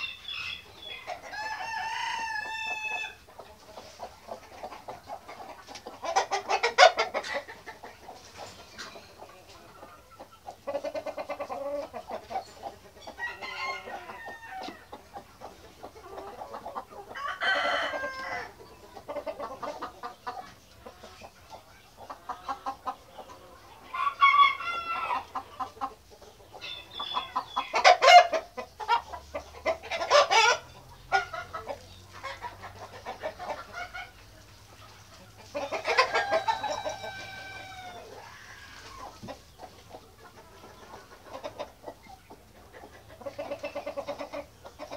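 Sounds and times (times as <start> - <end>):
chickens clucking: 0.0 - 44.9
rooster crowing: 1.3 - 3.2, 13.2 - 14.8, 17.2 - 18.5, 36.0 - 38.7.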